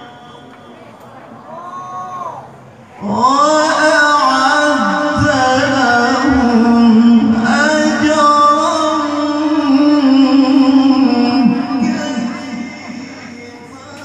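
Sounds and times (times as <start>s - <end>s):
man chanting into a microphone: 3.0s - 14.0s.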